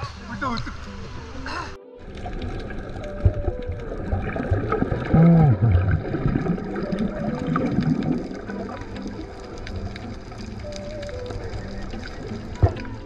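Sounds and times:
muffled underwater sloshing: 0.8 - 13.0
vocal sound through snorkel: 2.7 - 13.0.

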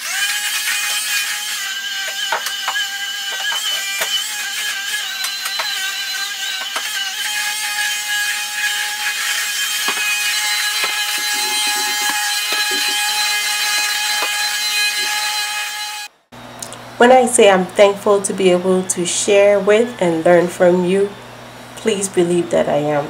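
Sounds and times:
stick vacuum cleaner running: 0.0 - 16.2.

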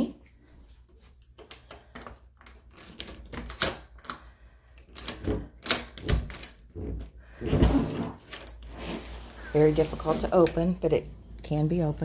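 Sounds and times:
door lock clicks and rattles: 1.4 - 7.1.

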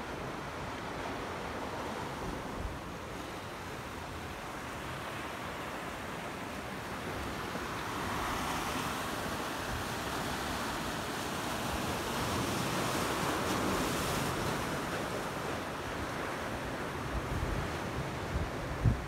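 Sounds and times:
wind rumbling on microphone: 17.0 - 19.0.

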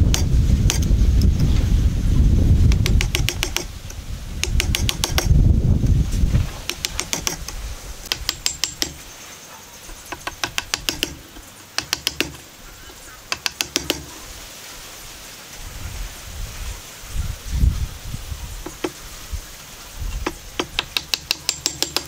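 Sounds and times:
low rumble of tool and hands: 0.0 - 9.1
chisel cracking wood fibres: 2.6 - 5.4, 6.4 - 9.1, 10.0 - 14.3, 20.2 - 22.0.

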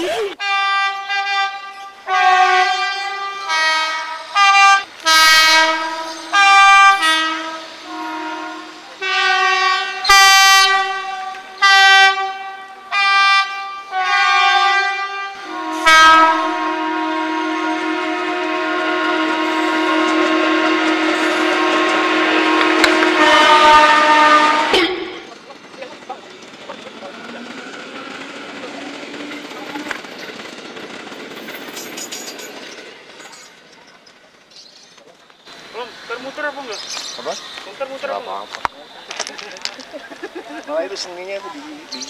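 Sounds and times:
long two-note train horn blast: 0.4 - 25.3
train horn toots: 0.4 - 25.3.

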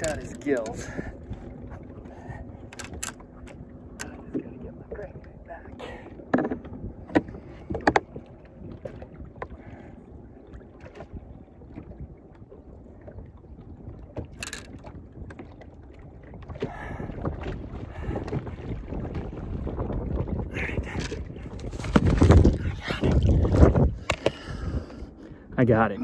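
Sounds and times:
wind rumble on microphone: 0.0 - 26.0
knocks and bumps in boat: 6.0 - 9.7, 14.1 - 24.4.

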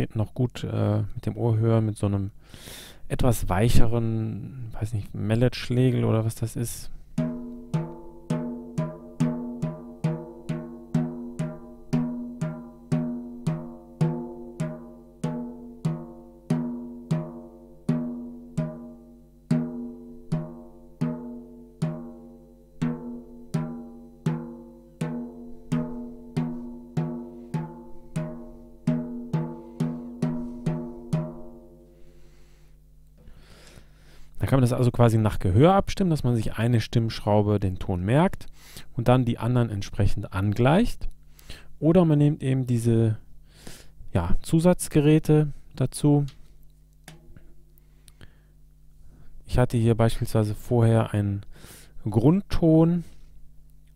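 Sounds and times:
mallet tapping snare drum head: 7.2 - 18.9, 47.1 - 47.3.

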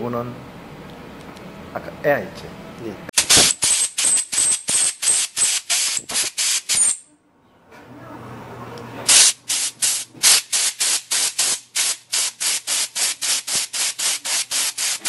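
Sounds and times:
air blow gun blasts: 3.2 - 7.0, 9.1 - 15.0.

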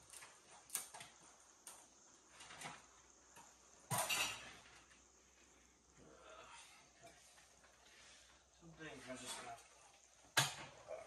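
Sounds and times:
objects clattering: 2.3 - 5.1
small knocks and clinks: 3.3 - 5.0.

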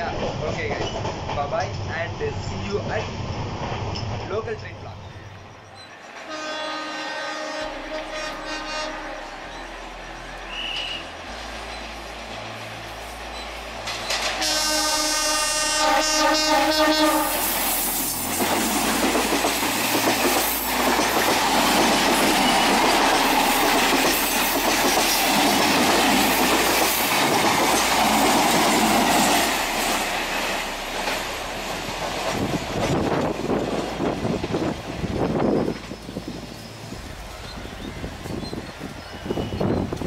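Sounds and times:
train wheels clattering over rails: 0.0 - 2.2, 10.6 - 15.6, 17.6 - 36.2
train horn: 6.2 - 11.2, 14.3 - 17.6.

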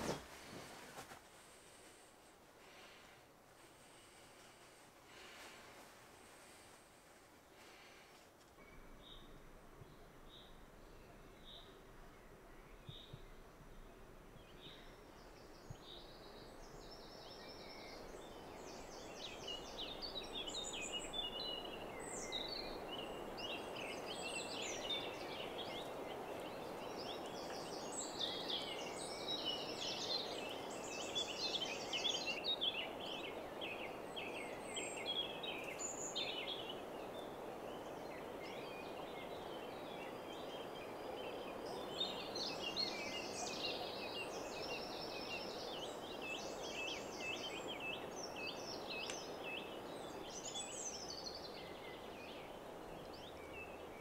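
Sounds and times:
songbirds singing: 2.6 - 54.0.

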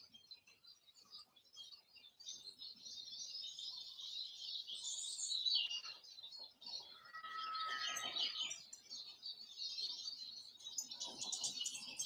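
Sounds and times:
birds twittering: 0.0 - 12.0.

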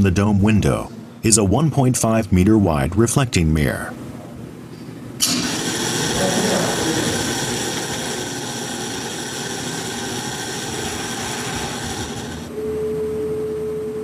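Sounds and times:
machinery whirring: 5.2 - 12.6
high-pitched whine: 5.2 - 14.0.

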